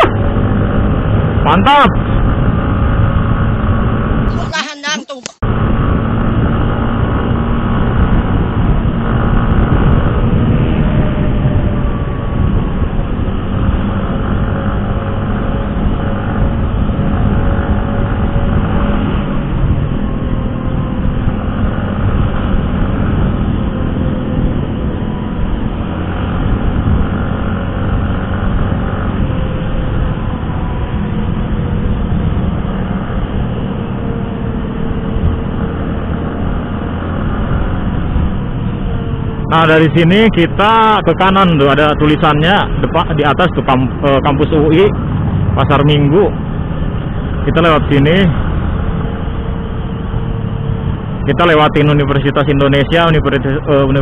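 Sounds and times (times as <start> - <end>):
motorcycle engine running: 0.0 - 4.4, 5.4 - 54.0
wind and road noise: 0.0 - 54.0.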